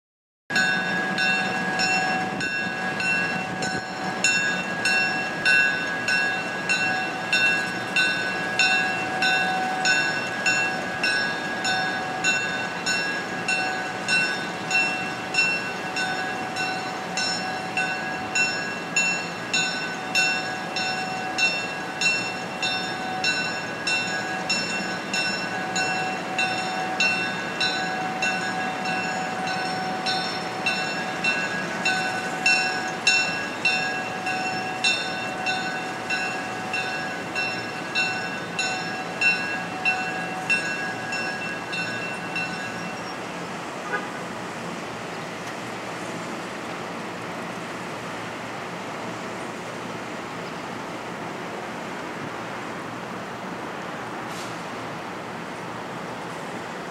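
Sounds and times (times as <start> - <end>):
locomotive bell ringing: 0.5 - 44.0.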